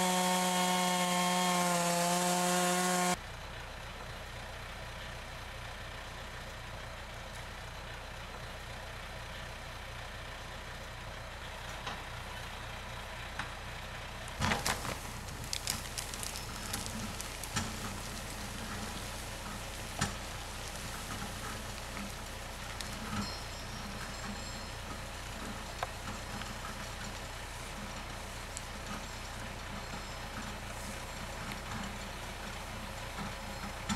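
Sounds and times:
log dragged through brush: 0:00.0 - 0:03.2, 0:14.4 - 0:33.9
tractor engine running: 0:00.0 - 0:33.9.

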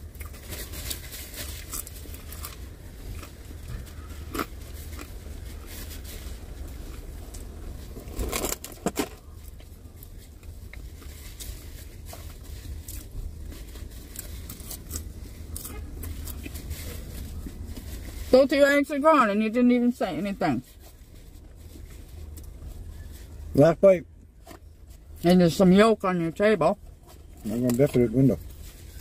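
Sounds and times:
chewing and crunching: 0:00.0 - 0:18.2
steady low hum: 0:00.0 - 0:25.6.

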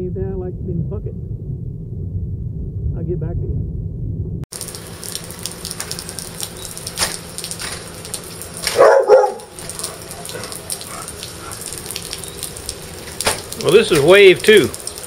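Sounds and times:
wind noise: 0:00.0 - 0:04.5
rain: 0:04.5 - 0:15.0
water dripping: 0:04.5 - 0:15.0
dog barking: 0:08.6 - 0:11.7.

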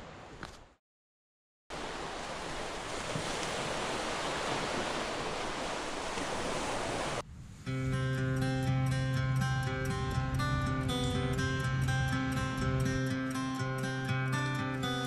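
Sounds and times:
ocean surf rushing: 0:01.7 - 0:07.2.

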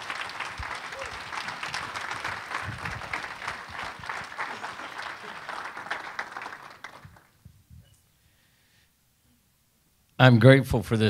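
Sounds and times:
congregation applauding: 0:00.0 - 0:07.4.

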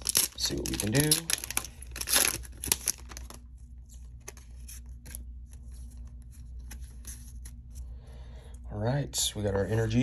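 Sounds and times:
foil pack and cards handled: 0:00.0 - 0:07.8
low steady hum: 0:00.0 - 0:10.0.

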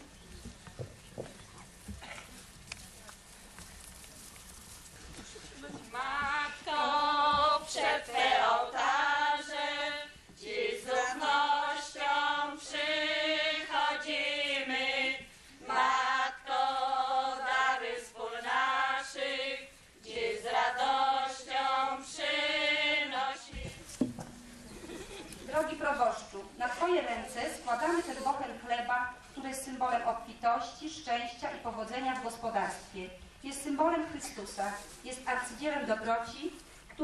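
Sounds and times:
women singing together: 0:05.9 - 0:23.9.

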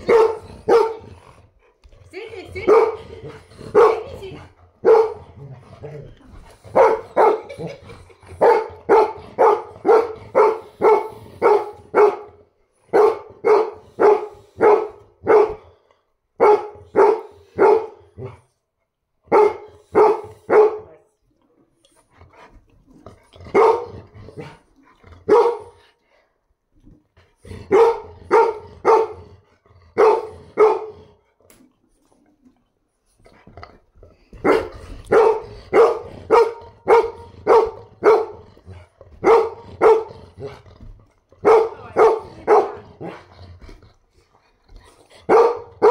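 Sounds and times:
dog barking: 0:00.0 - 0:01.0, 0:02.7 - 0:03.1, 0:03.7 - 0:04.1, 0:04.8 - 0:05.2, 0:06.7 - 0:07.6, 0:08.4 - 0:15.6, 0:16.4 - 0:18.4, 0:19.3 - 0:20.9, 0:23.5 - 0:24.0, 0:25.3 - 0:25.8, 0:27.7 - 0:29.3, 0:30.0 - 0:31.0, 0:34.4 - 0:38.4, 0:39.2 - 0:40.5, 0:41.4 - 0:43.2, 0:45.3 - 0:45.9.

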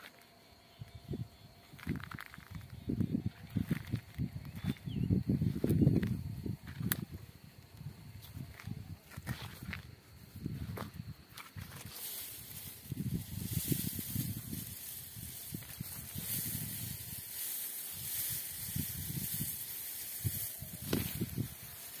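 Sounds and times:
rustling leaves: 0:01.6 - 0:06.5, 0:10.1 - 0:22.0.

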